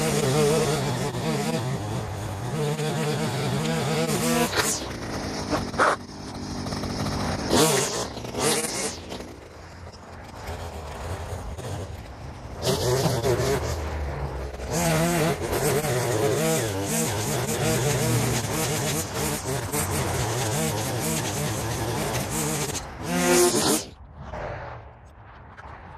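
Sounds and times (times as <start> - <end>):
string trimmer engine revving: 0.0 - 9.5, 12.6 - 13.8, 14.5 - 23.9.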